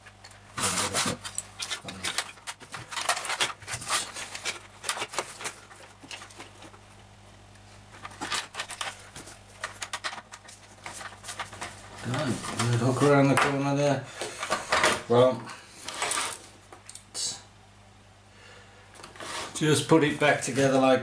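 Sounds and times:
plastic parts clicking and knocking: 0:00.0 - 0:06.8, 0:08.0 - 0:13.6.

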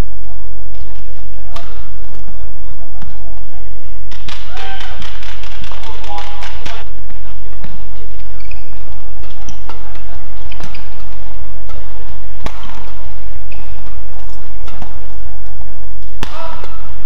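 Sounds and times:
steady low hum: 0:00.0 - 0:17.0
badminton racket hitting shuttlecock: 0:04.1 - 0:07.0, 0:12.4 - 0:15.0
shoe squeaks on court: 0:08.2 - 0:09.8.

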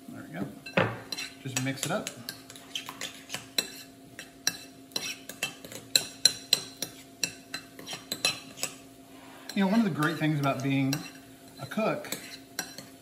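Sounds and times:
spoon clinking against ceramic bowl: 0:12.1 - 0:12.9.

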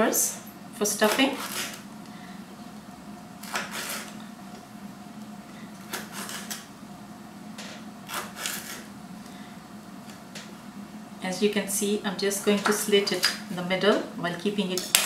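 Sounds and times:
low steady hum: 0:00.0 - 0:15.0
knife cutting on chopping board: 0:08.1 - 0:08.8.

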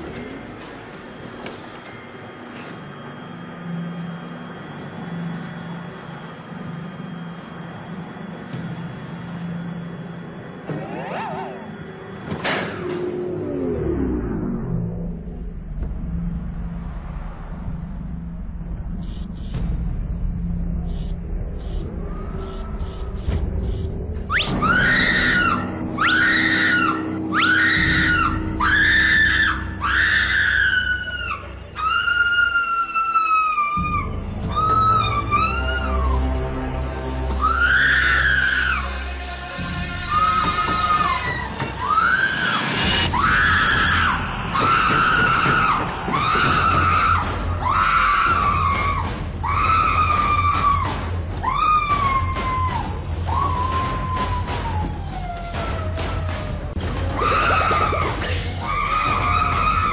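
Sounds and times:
woman screaming in terror: 0:24.5 - 0:36.3, 0:37.4 - 0:39.4, 0:40.0 - 0:56.4, 0:57.1 - 0:59.9.

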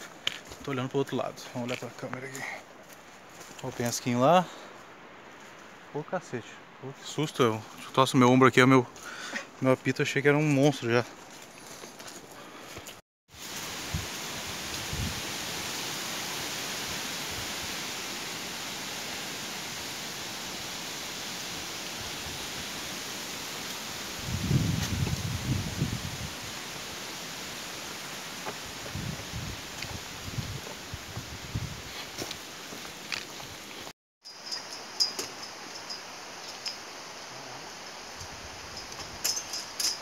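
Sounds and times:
faint footsteps on dirt: 0:00.0 - 0:06.0, 0:10.7 - 0:13.0, 0:28.3 - 0:33.9
forest background hiss: 0:00.0 - 0:40.0.

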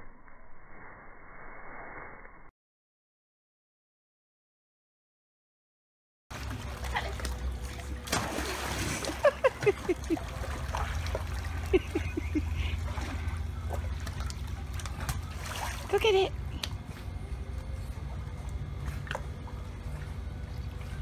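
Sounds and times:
pool water splashing: 0:06.3 - 0:16.9.

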